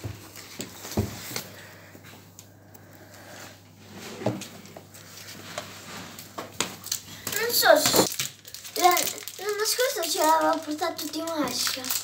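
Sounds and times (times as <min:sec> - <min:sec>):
paper and plastic rustling: 0:04.2 - 0:12.0.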